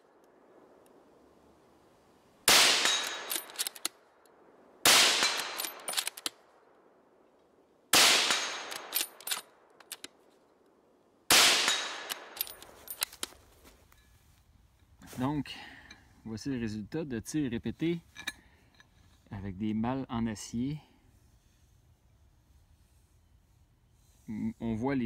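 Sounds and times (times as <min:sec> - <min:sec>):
gunshots: 0:02.5 - 0:03.3, 0:04.8 - 0:05.9, 0:07.9 - 0:09.0, 0:11.3 - 0:12.4.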